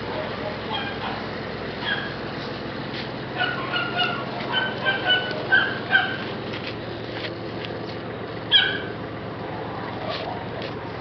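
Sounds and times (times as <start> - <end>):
puppy whimpering: 3.4 - 6.2.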